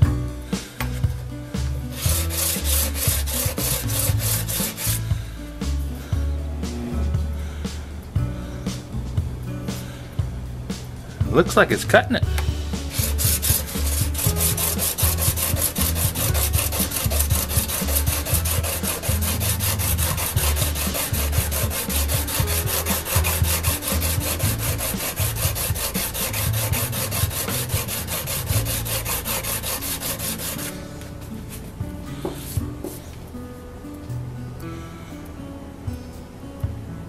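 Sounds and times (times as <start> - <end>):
tool bit scraping on sharpening plate: 12.9 - 30.4.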